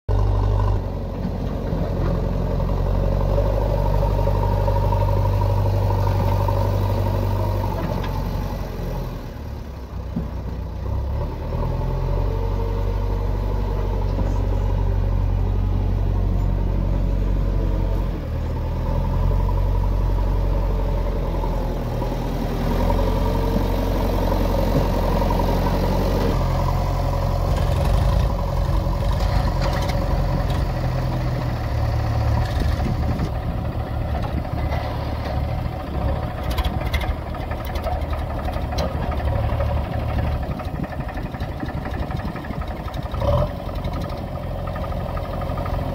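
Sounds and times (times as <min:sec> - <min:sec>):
diesel engine running: 0:00.1 - 0:45.9
rapid clatter: 0:36.1 - 0:44.9.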